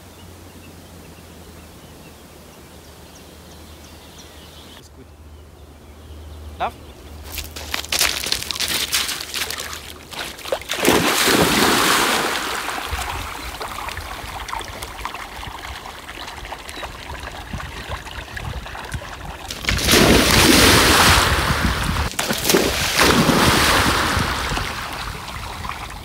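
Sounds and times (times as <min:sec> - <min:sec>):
dog crunching over pebbles: 0:07.2 - 0:10.5
dog splashing into water: 0:07.7 - 0:26.0
dog swimming in water: 0:08.9 - 0:20.8.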